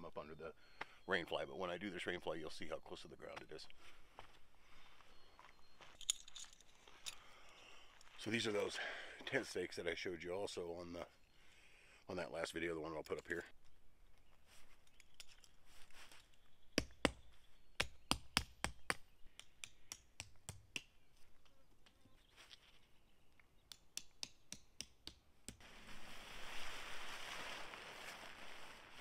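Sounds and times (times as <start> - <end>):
rustling: 14.3 - 16.5, 25.6 - 29.0.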